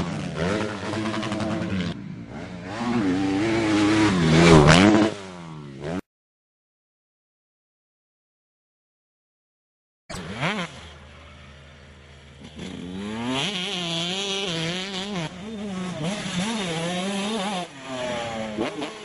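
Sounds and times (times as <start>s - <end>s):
motocross bike engine revving: 0.0s - 6.0s, 10.1s - 19.0s.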